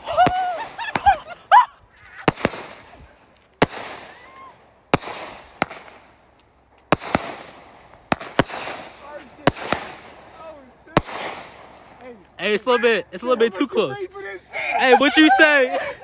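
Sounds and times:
fireworks bangs with hiss: 0.0s - 1.4s, 2.1s - 12.2s.

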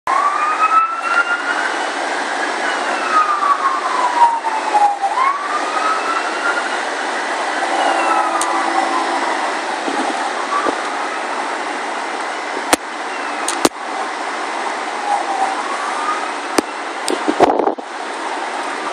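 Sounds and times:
siren wailing: 0.1s - 11.6s, 15.0s - 16.8s.

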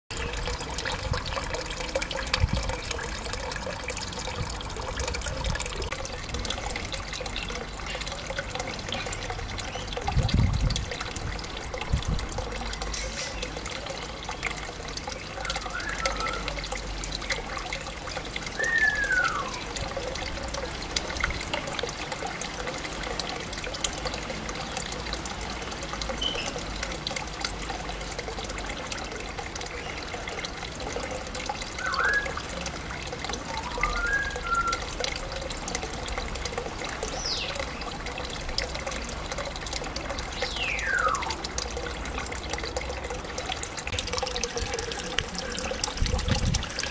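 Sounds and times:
water trickling: 0.1s - 46.9s
parrot whistle: 18.6s - 19.6s, 31.8s - 32.4s, 33.6s - 34.8s.

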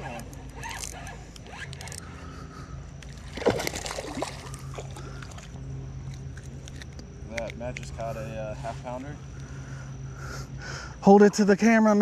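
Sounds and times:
water sloshing and splashing: 3.0s - 6.9s.

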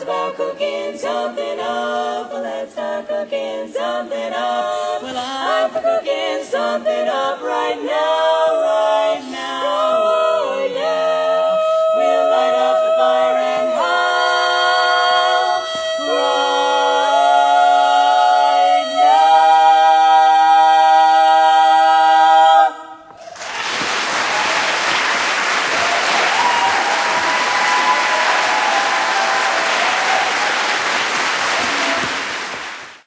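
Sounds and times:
women singing in harmony: 0.0s - 23.1s
audience applause: 23.2s - 33.0s.

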